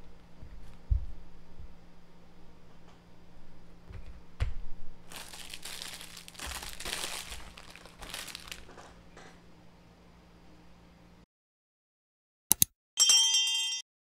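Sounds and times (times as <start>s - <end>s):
packaging wrapper crinkling: 5.1s - 9.0s.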